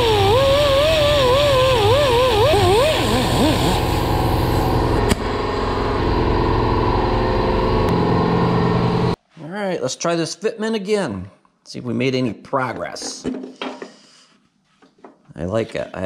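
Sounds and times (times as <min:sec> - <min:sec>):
die grinder whining: 0:00.0 - 0:05.1.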